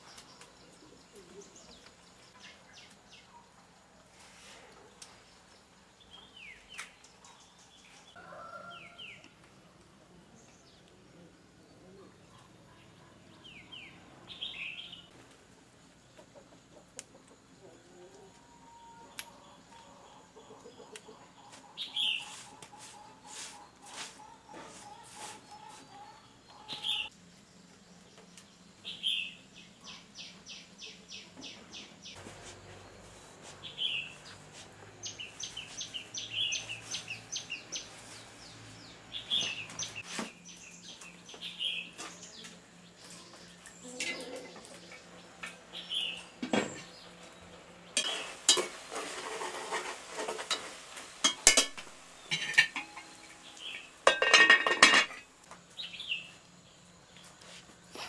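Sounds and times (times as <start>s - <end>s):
bird chirping: 19.2s - 48.3s
pots and dishes clattering: 43.9s - 44.8s, 48.0s - 53.3s, 54.0s - 55.3s.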